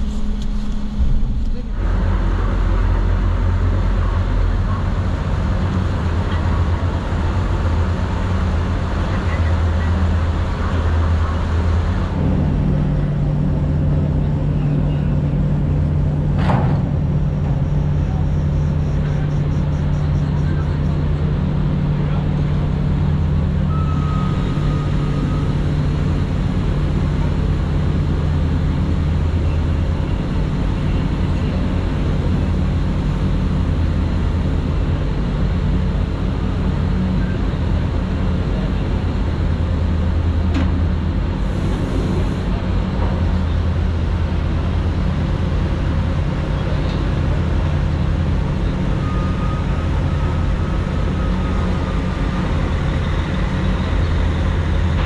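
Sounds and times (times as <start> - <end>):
constant rushing noise: 0.0 - 55.0
low engine drone: 0.0 - 55.0.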